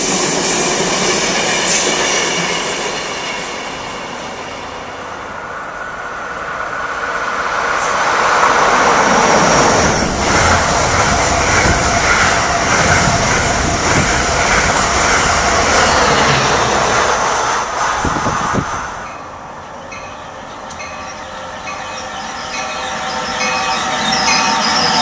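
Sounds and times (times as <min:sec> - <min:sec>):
train passing at speed: 0:00.0 - 0:25.0
wheels clattering on rails: 0:06.3 - 0:19.3.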